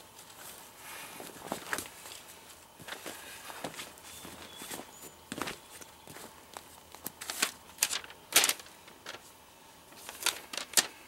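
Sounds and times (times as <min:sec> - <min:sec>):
stiff plastic crinkling: 0:01.2 - 0:09.3, 0:09.9 - 0:11.0.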